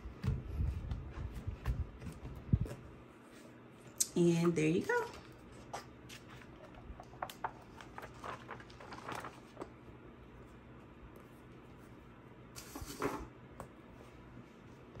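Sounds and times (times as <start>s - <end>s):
paper pages flicking: 6.1s - 9.8s.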